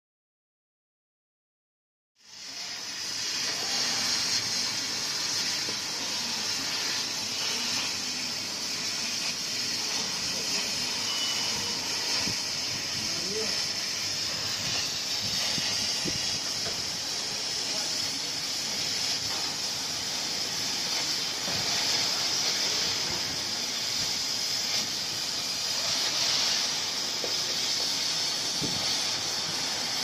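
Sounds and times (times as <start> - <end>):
laser cutter high hiss: 2.2 - 30.0.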